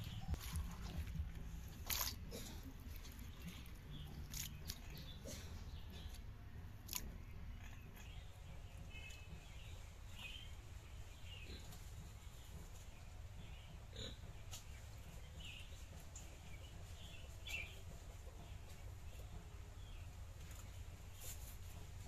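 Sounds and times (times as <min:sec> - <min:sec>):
fingers scraping fish wetly: 0:00.1 - 0:06.2.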